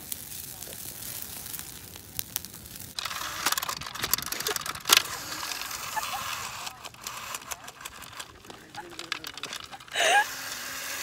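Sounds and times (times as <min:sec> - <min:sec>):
brush fire crackling: 0:00.0 - 0:11.0
cordless chainsaw running: 0:03.0 - 0:11.0.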